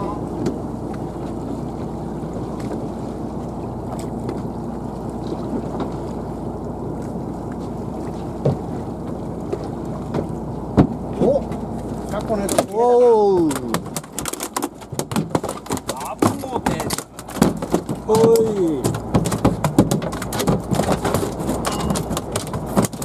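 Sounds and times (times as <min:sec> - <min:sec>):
boat engine rumbling: 0:00.0 - 0:23.0
sharp knocks: 0:13.6 - 0:23.0.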